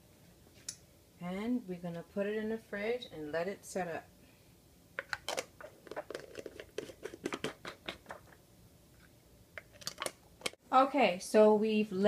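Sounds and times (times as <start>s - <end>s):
glass jars clicking and scraping: 5.0s - 7.6s.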